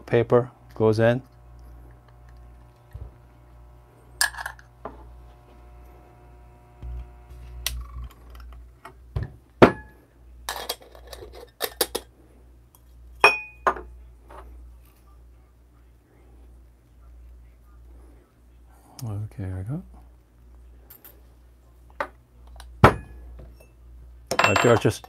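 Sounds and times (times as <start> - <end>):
metal tools clinking and knocking: 24.3 - 25.0.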